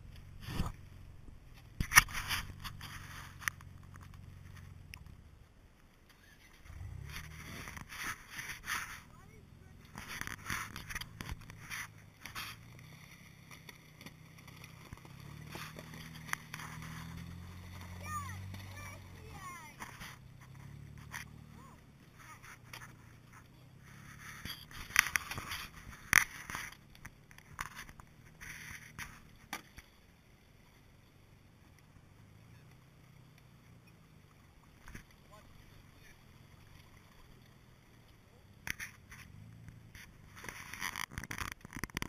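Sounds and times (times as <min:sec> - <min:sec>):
car engine idling: 0:02.4 - 0:40.7
footsteps crunching on snow: 0:09.8 - 0:21.6.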